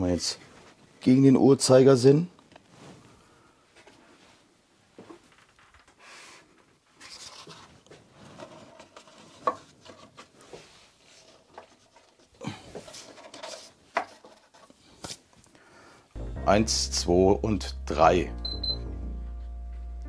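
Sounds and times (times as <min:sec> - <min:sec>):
hands rubbing and fiddling with fan: 0:04.9 - 0:15.5.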